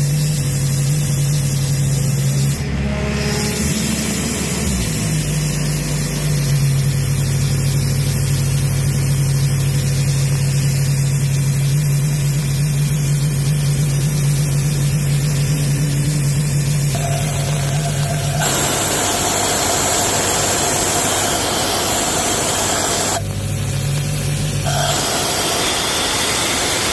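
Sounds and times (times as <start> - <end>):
diesel engine running: 12.4 - 26.9
compressed air rushing: 17.0 - 23.2, 24.6 - 26.9.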